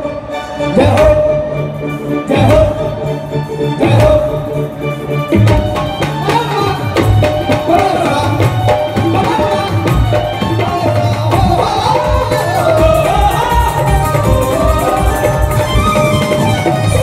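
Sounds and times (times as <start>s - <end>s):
devotional band music over loudspeakers: 0.0s - 17.0s
drum and percussion beat: 3.8s - 4.7s, 5.3s - 17.0s.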